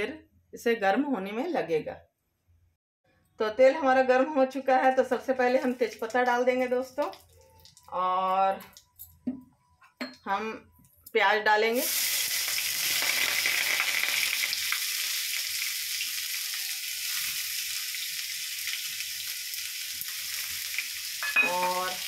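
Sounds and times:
onions sizzling in hot oil: 11.8s - 22.0s.

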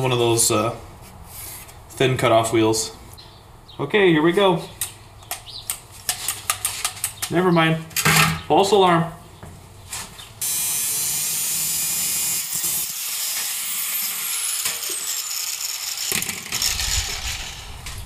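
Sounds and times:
angle grinder cutting steel: 10.4s - 17.9s
grinder winding down whine: 10.4s - 18.0s.

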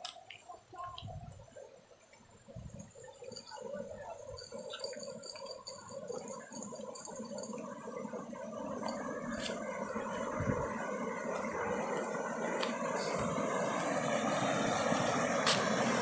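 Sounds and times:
water gurgling and splashing: 5.0s - 16.0s.

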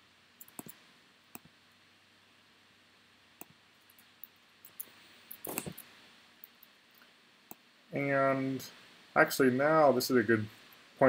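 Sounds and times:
faint computer mouse clicks: 0.4s - 1.5s.

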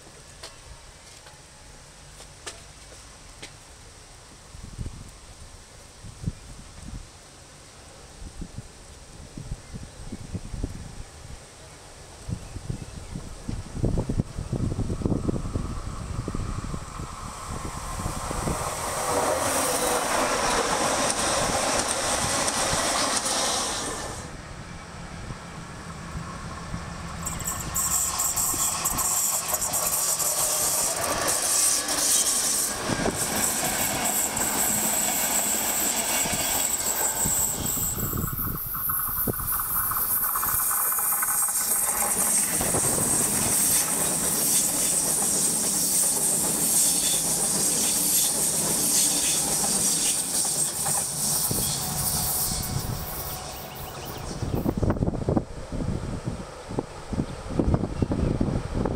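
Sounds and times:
electric trains passing: 13.1s - 58.9s
high hiss: 13.3s - 24.4s, 25.5s - 55.8s
wheels clattering over rail joints: 27.1s - 52.6s.

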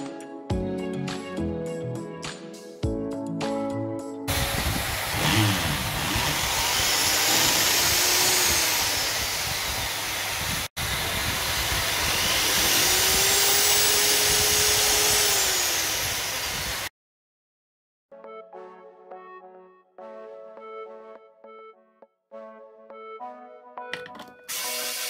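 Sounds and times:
electric drill boring into wall: 4.3s - 16.9s, 24.5s - 25.0s.

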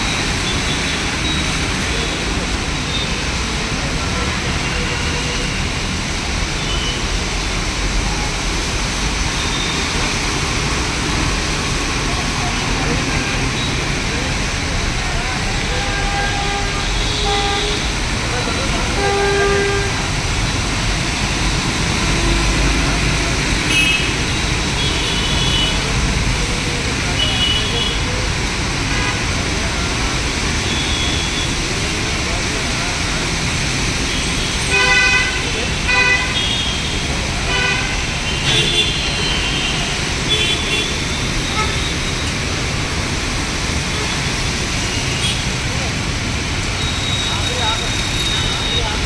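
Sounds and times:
heavy rain pouring: 0.0s - 49.0s
tyres hissing on wet road: 0.0s - 49.0s
vehicle horns honking: 15.8s - 17.9s, 23.7s - 25.8s, 34.1s - 42.0s.

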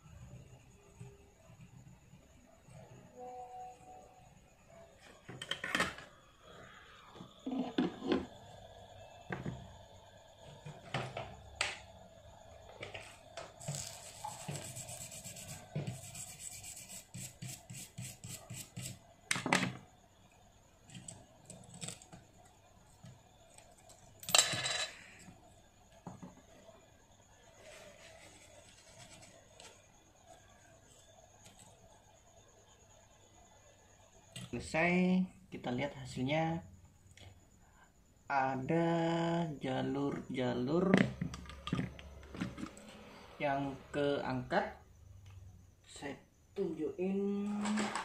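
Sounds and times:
tool scraping circuit board: 13.6s - 19.0s.

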